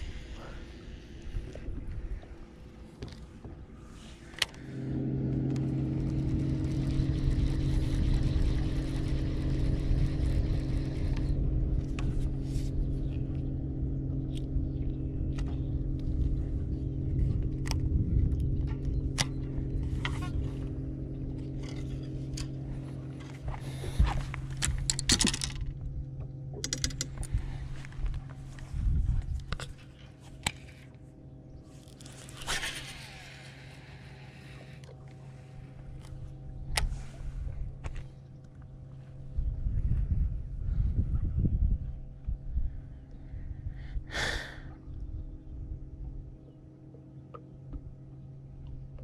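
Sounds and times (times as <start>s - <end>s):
boat motor humming: 0.0s - 49.0s
clicks and rattles: 24.6s - 25.8s, 26.6s - 27.4s.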